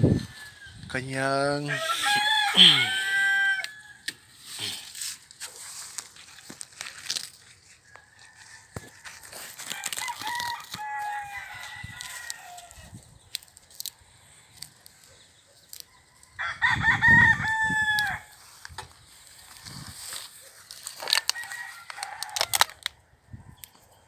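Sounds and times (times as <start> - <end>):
rooster crowing: 1.6 - 4.2, 7.9 - 12.9, 15.9 - 18.4, 21.1 - 22.8.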